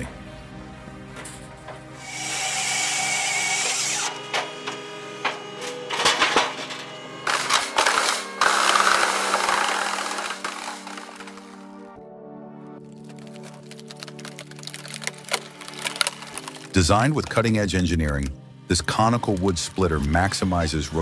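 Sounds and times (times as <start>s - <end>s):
background music: 0.0s - 21.0s
log splitting cracks and knocks: 12.8s - 18.3s.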